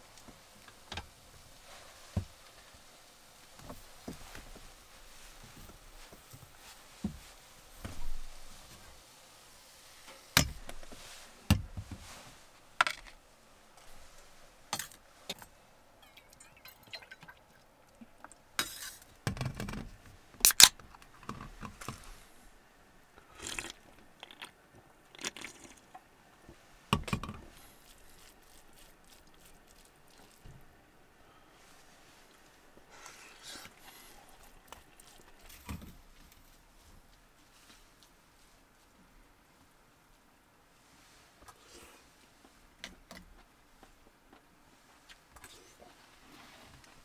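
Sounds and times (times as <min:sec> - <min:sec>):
beer can cracking open: 0:20.4 - 0:21.1.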